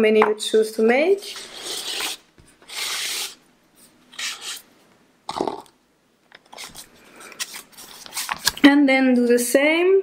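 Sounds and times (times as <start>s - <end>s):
paper rubbing: 1.2s - 3.4s, 4.1s - 4.7s, 6.5s - 8.5s.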